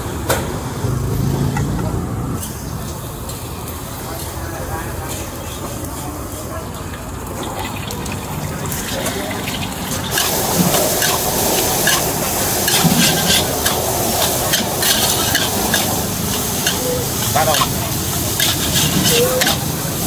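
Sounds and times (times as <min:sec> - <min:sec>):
food sizzling in a wok: 0:08.8 - 0:20.0
metal spatula scraping a pan: 0:10.1 - 0:20.0.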